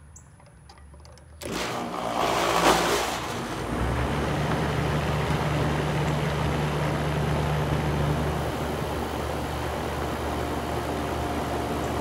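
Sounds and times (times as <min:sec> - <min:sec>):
air conditioning unit humming: 0:01.4 - 0:12.0.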